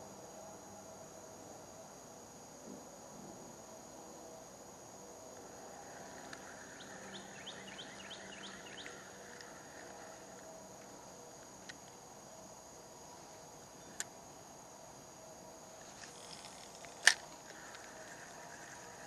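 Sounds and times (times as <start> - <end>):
high-pitched insect drone: 0.0 - 19.0
bird chirping: 6.0 - 10.2.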